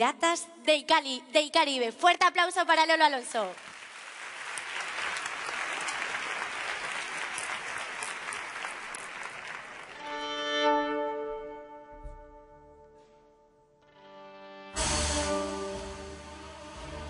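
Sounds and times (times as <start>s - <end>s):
audience applause: 3.5s - 10.2s
violin and band chord: 10.0s - 12.7s, 13.8s - 17.0s.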